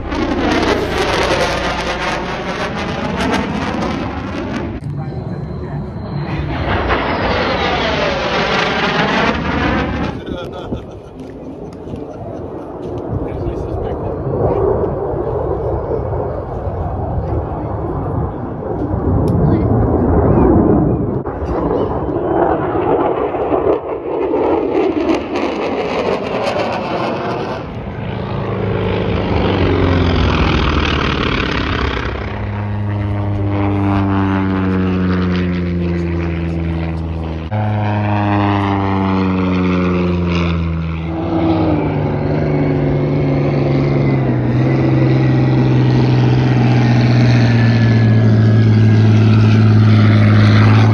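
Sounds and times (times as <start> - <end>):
rushing noise: 0.0 - 10.4
propeller plane flying past: 0.0 - 50.9.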